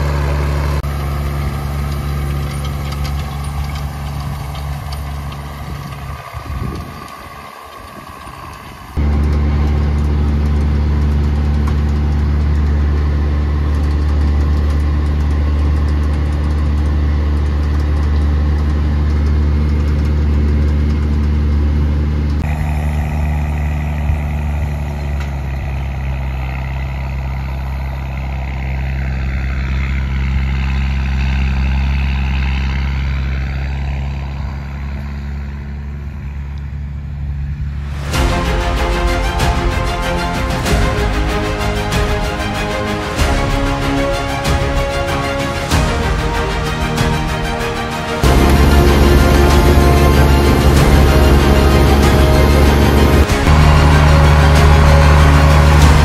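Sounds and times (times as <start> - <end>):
tractor diesel engine running: 0.0 - 56.0.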